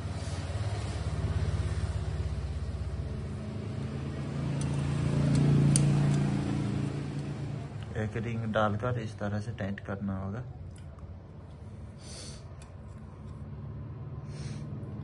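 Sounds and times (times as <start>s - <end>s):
vehicle engine running: 0.0s - 8.5s.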